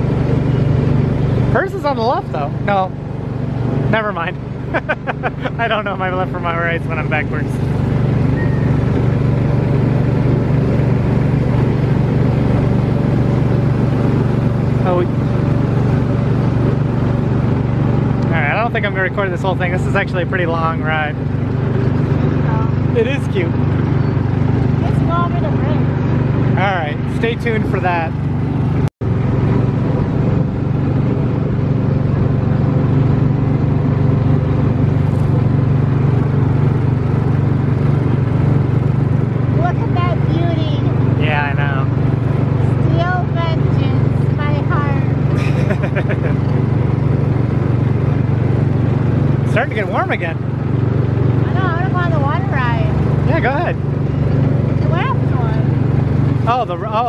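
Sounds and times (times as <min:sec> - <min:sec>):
ride car engine droning: 0:00.0 - 0:57.0.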